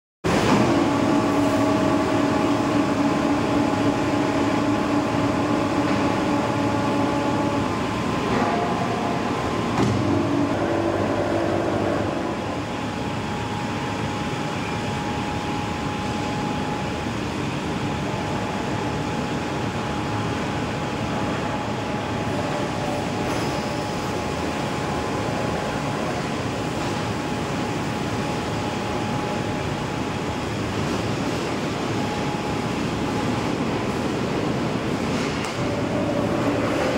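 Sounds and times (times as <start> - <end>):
rolling mill mechanical din: 0.3 - 36.9
steady humming tones: 0.3 - 36.9.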